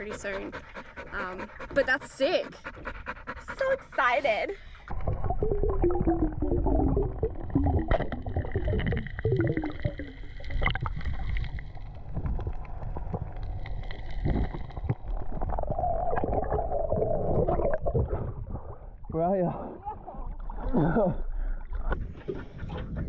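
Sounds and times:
water gurgling: 0.0s - 23.0s
low underwater rumble: 4.6s - 23.0s.

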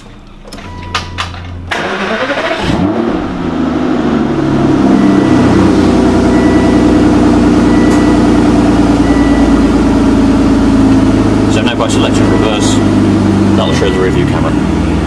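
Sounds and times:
car engine starting and idling: 0.0s - 15.0s
starter motor cranking: 1.7s - 2.8s.

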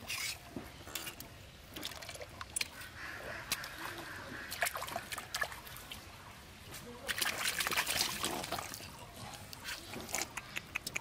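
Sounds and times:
short wet clicks and slaps: 10.0s - 11.0s.

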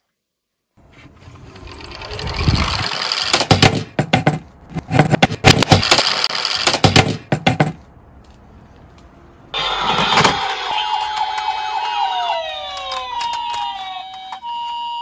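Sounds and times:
toy car rolling on wood: 1.1s - 3.7s.

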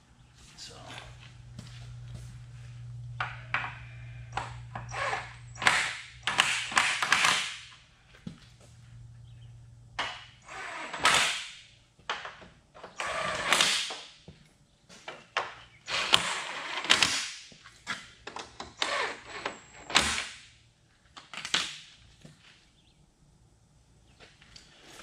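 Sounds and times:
impact gun bursts: 5.6s - 7.7s.

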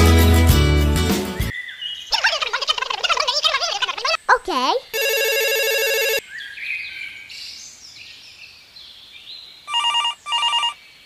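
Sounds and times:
telephone ringing: 4.9s - 6.2s, 9.7s - 10.8s.

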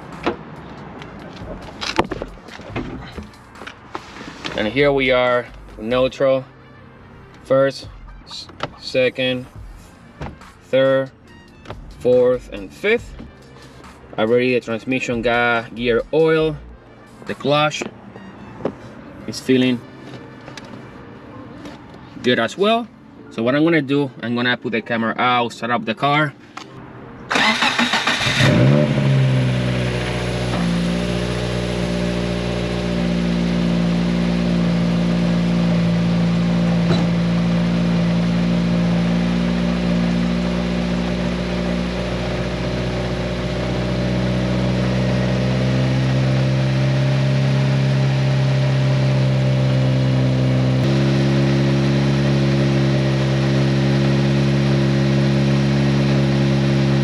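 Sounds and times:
car engine idling: 0.0s - 6.2s, 27.3s - 57.0s.

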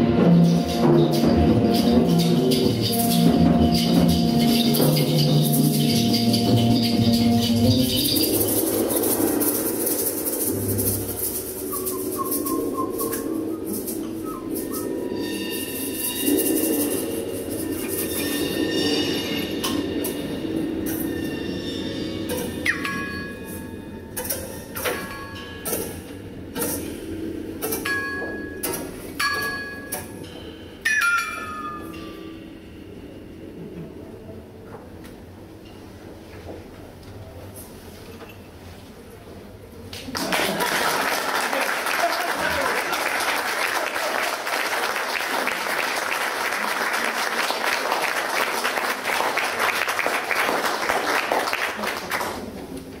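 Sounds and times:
double bass notes: 0.0s - 16.4s
metallic percussion strikes ringing: 0.0s - 33.7s
audience applauding: 40.0s - 52.7s.

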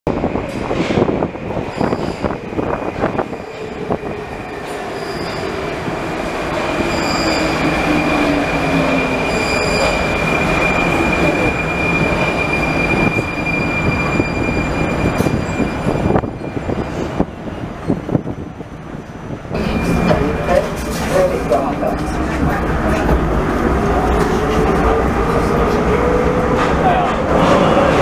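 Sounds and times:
train rumbling: 0.1s - 28.0s
high brake squeal: 1.7s - 2.4s, 4.9s - 5.6s, 6.8s - 17.1s, 19.6s - 20.5s.

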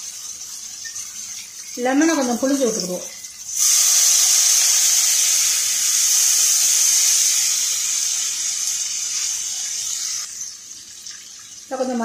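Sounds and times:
juice sizzling in hot oil: 0.0s - 12.0s.

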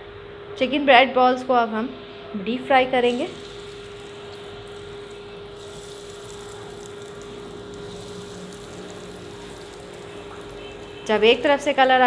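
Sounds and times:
steady hum: 2.0s - 12.0s
food deep-frying in oil: 2.8s - 12.0s.

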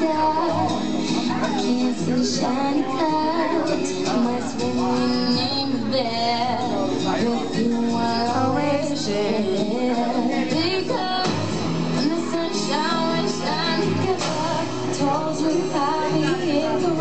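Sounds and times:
pop song with female vocal: 0.0s - 17.0s.

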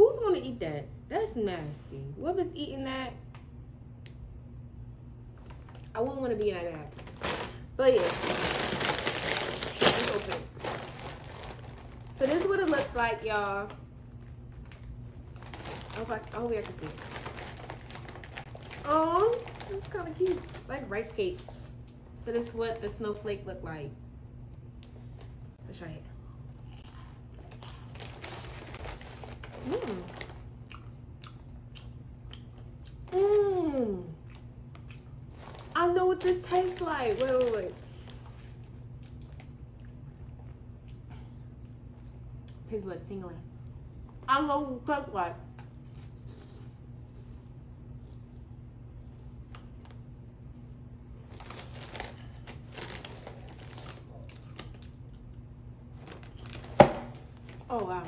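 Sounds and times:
crunching and chewing snacks: 6.6s - 21.7s, 26.2s - 33.5s, 34.2s - 42.6s, 45.5s - 50.1s, 51.2s - 58.0s.

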